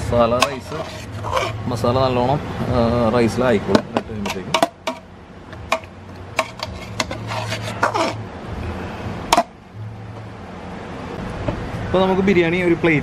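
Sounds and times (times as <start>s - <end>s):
metal spoon scraping a pot: 0.4s - 1.7s, 4.2s - 5.1s, 5.7s - 8.2s.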